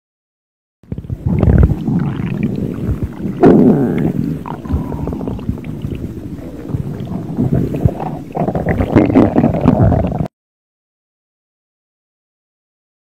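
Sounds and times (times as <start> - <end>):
stomach growling: 0.9 - 10.3.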